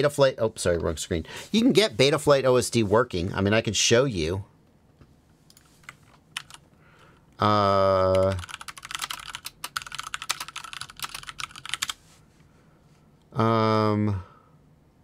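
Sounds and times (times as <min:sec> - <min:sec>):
computer keyboard typing: 0:05.5 - 0:06.6, 0:08.1 - 0:12.0.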